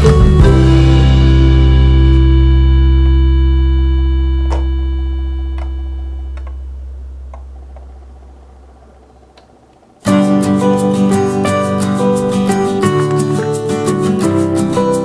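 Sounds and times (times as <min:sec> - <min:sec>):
held music chord: 0:00.0 - 0:08.6.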